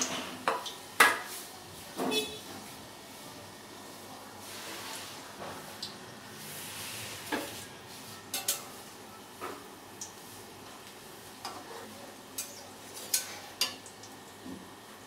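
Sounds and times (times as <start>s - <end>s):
chicken sizzling in hot oil: 4.4s - 15.0s.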